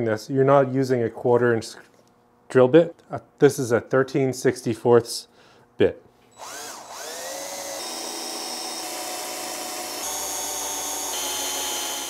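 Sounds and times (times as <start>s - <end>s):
cordless drill drilling into metal: 6.4s - 12.0s.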